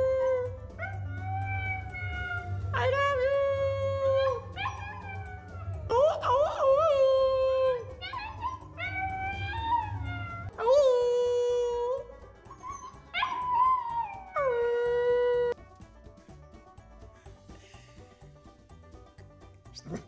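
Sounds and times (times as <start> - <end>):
puppy howling: 0.0 - 2.8, 3.6 - 11.0, 11.7 - 15.6
puppy yipping: 4.3 - 5.9, 7.7 - 10.5, 12.4 - 14.3.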